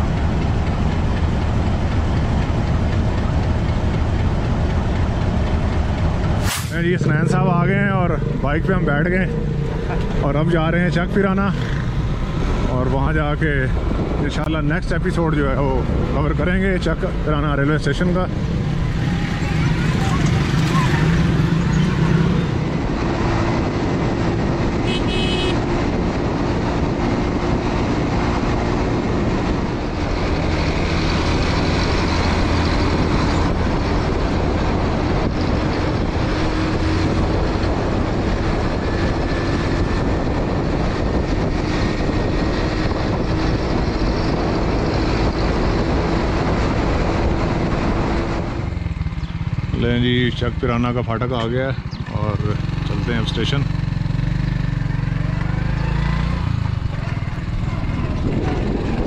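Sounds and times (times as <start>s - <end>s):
motorcycle engine hum: 0.0s - 59.0s
road and wind noise: 0.0s - 59.0s.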